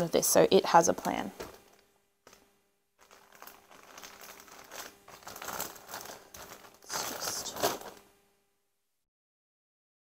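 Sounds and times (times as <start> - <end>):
plastic bags crinkling: 1.0 - 2.4, 3.0 - 8.0.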